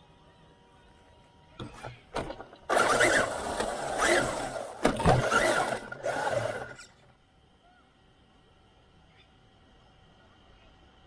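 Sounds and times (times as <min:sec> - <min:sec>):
electric motor whining: 0:01.6 - 0:07.0.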